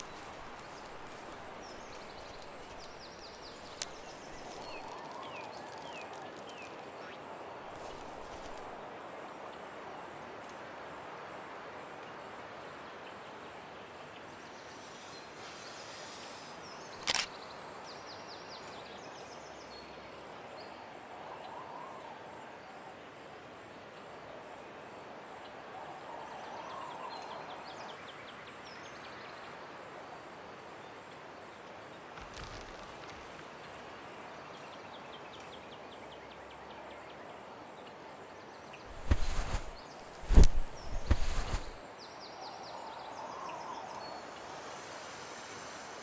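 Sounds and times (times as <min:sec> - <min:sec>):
birds chirping: 0:00.0 - 0:06.7, 0:38.9 - 0:41.8
steady hiss: 0:00.0 - 0:08.8, 0:13.9 - 0:17.0, 0:38.9 - 0:41.9, 0:43.2 - 0:46.0.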